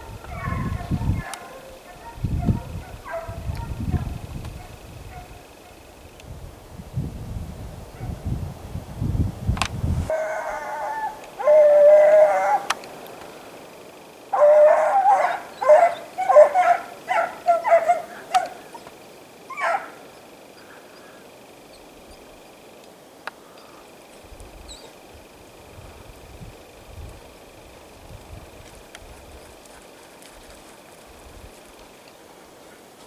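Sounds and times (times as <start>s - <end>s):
hounds baying: 0.0s - 6.0s, 10.1s - 12.8s, 14.3s - 22.4s.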